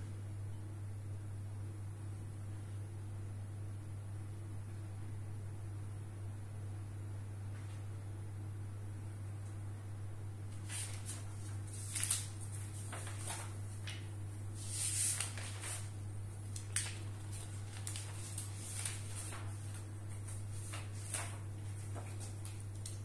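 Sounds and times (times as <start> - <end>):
steady low hum: 0.0 - 23.0
notebook pages turning: 10.6 - 23.0.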